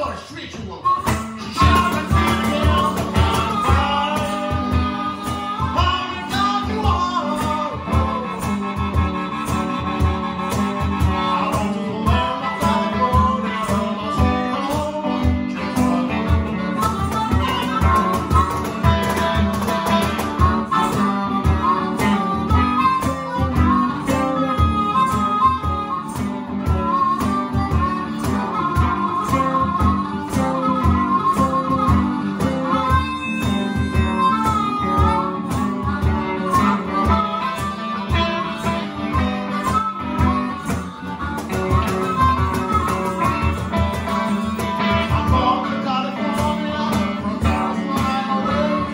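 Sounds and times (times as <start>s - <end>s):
man singing: 0.0s - 8.8s, 11.0s - 21.0s, 42.9s - 48.9s
harmonica: 0.0s - 48.9s
strummed electric guitar: 0.0s - 48.9s
cajon thumps: 0.9s - 48.9s.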